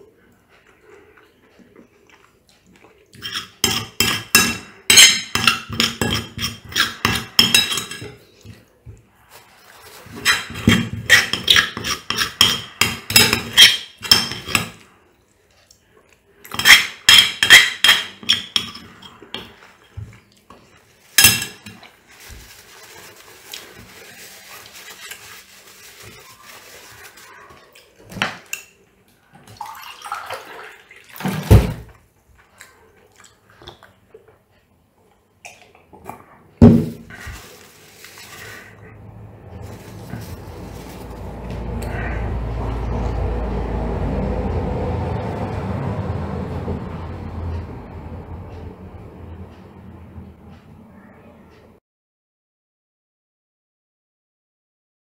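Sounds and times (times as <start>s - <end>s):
cutlery scraping ceramic plate: 3.2s - 8.2s, 10.1s - 14.8s, 16.5s - 19.6s, 21.2s - 21.8s.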